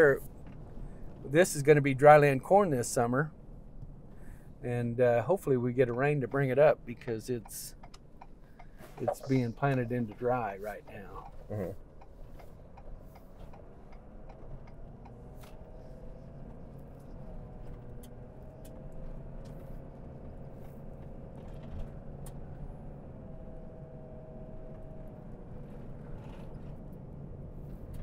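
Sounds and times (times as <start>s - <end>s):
road and engine rumble: 0.0s - 28.0s
faint whine: 8.4s - 13.4s.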